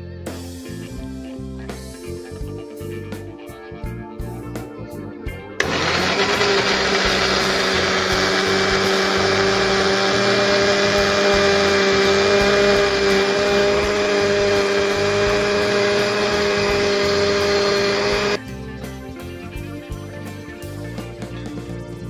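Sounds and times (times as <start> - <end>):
blender running: 5.6 - 18.4.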